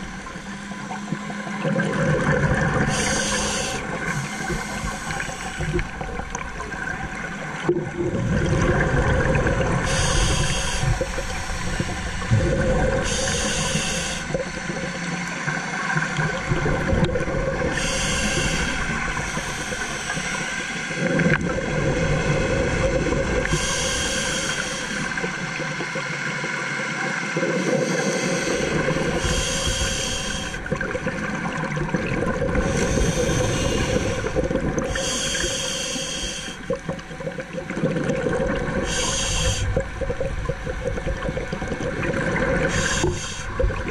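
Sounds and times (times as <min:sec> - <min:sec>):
gurgling exhaled bubbles: 0:00.0 - 0:26.6, 0:27.4 - 0:43.9
steady hum: 0:00.0 - 0:43.9
regulator breathing hiss: 0:02.8 - 0:05.9, 0:09.8 - 0:12.3, 0:13.0 - 0:14.7, 0:17.7 - 0:21.0, 0:23.4 - 0:25.4, 0:27.7 - 0:30.7, 0:32.6 - 0:36.7, 0:38.8 - 0:39.8, 0:42.6 - 0:43.7.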